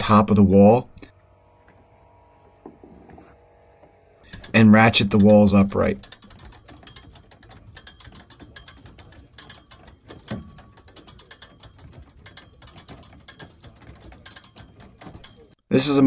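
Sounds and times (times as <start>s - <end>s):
jack ratchet clicking: 4.2s - 15.6s.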